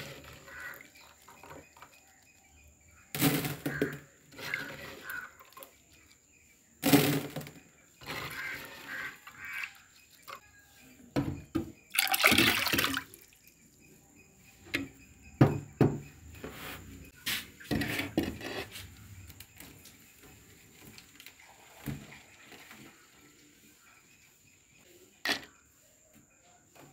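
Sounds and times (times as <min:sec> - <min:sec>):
water sloshing in clay pot: 0:11.7 - 0:13.5.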